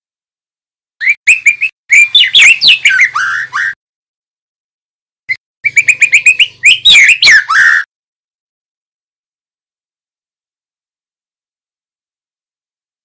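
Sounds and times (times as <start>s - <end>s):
bird singing whistled notes: 1.0s - 3.8s, 5.6s - 7.9s.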